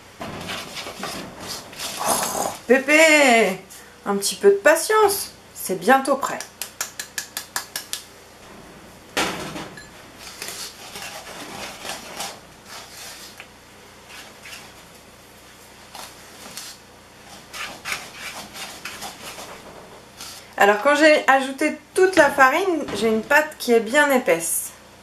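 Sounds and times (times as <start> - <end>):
wooden spoon scraping a bowl: 10.2 - 13.5, 15.9 - 20.5.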